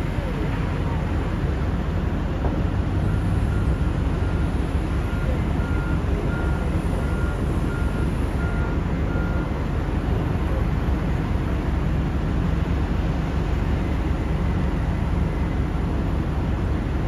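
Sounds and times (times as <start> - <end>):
heavy diesel machinery rumbling: 0.0 - 17.0.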